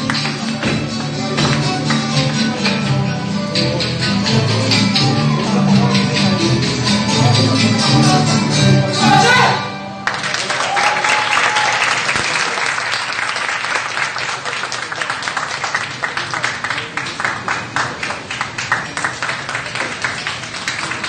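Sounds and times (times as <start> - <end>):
audience applauding: 10.0 - 21.0.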